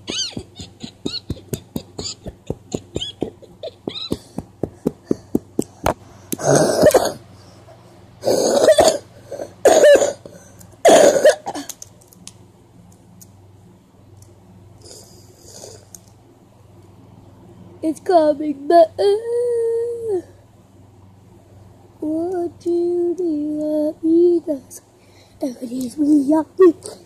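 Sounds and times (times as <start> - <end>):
person coughing: 0.0 - 4.4, 6.4 - 7.2, 8.2 - 11.7.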